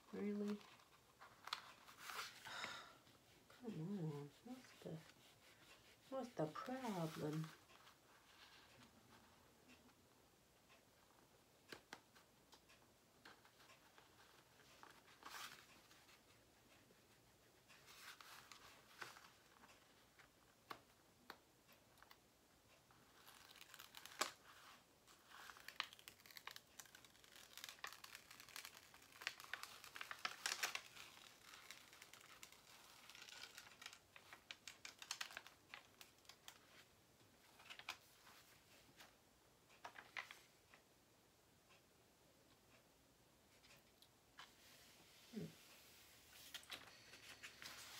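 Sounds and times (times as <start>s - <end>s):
plastic film crinkling: 23.1s - 36.8s.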